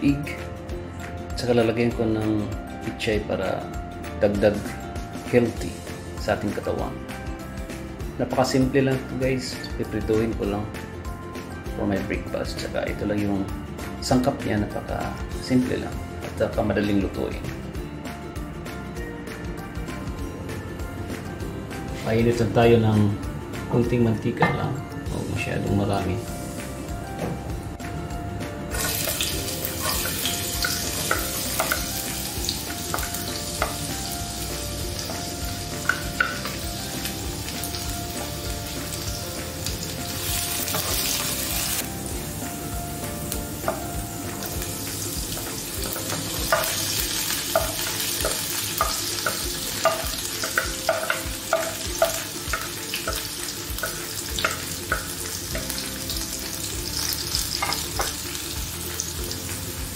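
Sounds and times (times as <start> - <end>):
garlic and onion sizzling in oil: 25.9 - 27.0, 28.6 - 59.9.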